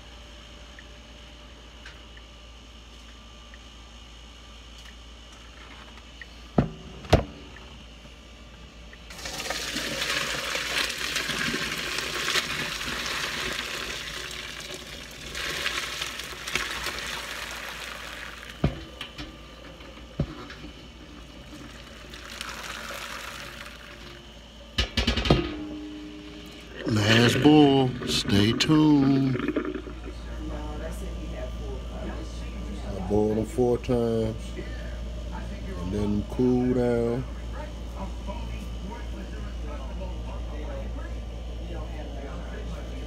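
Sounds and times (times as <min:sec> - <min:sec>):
hot water pouring into sink: 0:09.1 - 0:18.7, 0:21.4 - 0:24.2.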